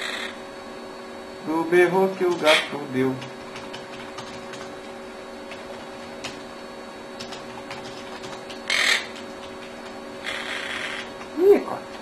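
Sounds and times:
parakeet squawking: 0.0s - 0.4s, 2.4s - 2.8s, 8.6s - 9.2s, 10.2s - 11.2s
faint background hum: 0.0s - 12.0s
raspy bird call: 8.7s - 9.1s.

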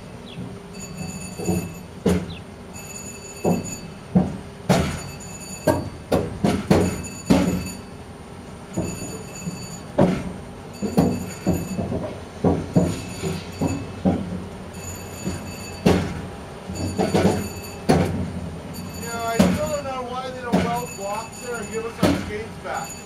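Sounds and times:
metal clunks and knocks: 0.3s - 7.9s, 8.6s - 23.0s.

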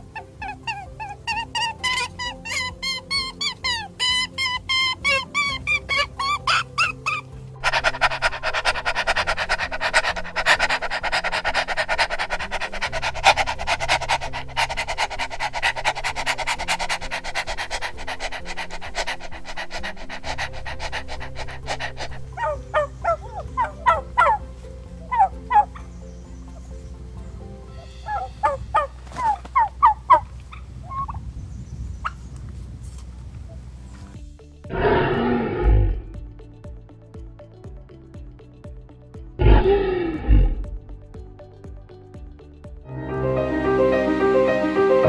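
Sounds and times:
rapidly pulsing animal sound: 0.0s - 26.6s, 28.0s - 30.3s
quiet background music: 0.0s - 45.0s
turkey gobbling: 0.4s - 25.9s, 28.0s - 31.2s.

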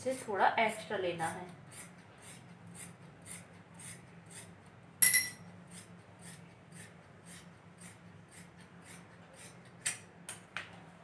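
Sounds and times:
sharp ringing clink: 5.0s - 5.5s.

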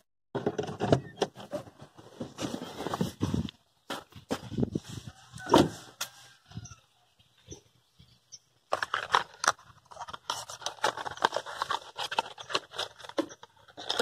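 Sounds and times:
packaging rustling and crackling: 8.7s - 14.0s.

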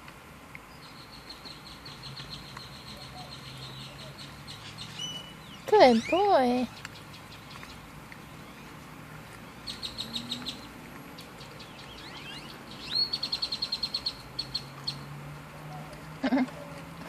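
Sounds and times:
small bird chirping: 0.7s - 8.8s, 9.4s - 15.1s
bird fast trill: 11.4s - 15.0s.

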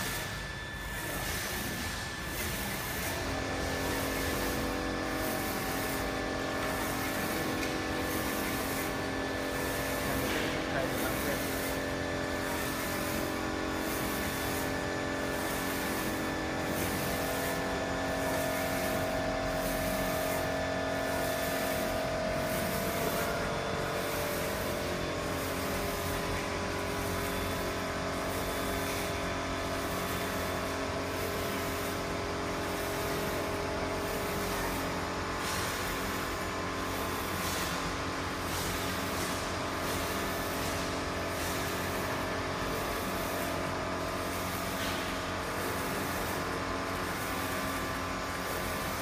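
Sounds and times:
printer carriage humming and pulsing: 0.0s - 49.0s.

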